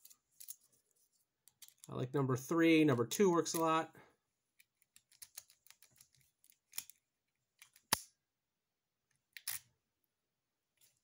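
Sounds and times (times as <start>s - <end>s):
key clicking and scraping in padlock: 4.5s - 8.1s, 9.3s - 9.7s.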